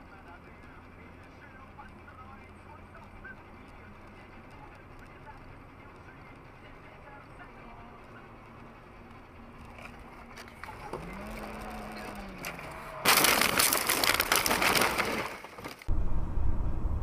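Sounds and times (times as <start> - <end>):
car interior road rumble: 0.0 - 13.0
crunching and rattling debris: 9.5 - 15.9
vehicle crash: 9.8 - 15.9.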